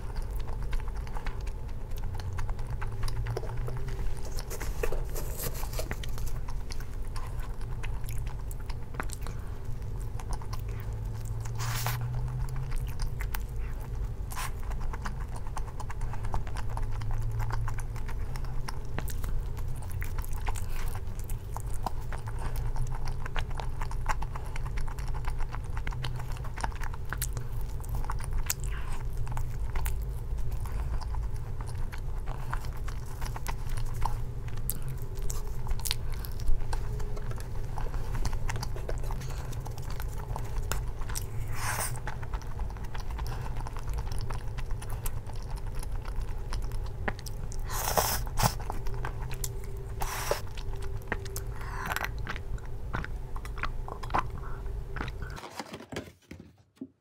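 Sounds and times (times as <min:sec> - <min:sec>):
low hum: 0:00.0 - 0:55.4
chewing and crunching food: 0:00.0 - 0:55.8
fork crackling in foil tray: 0:04.2 - 0:06.4.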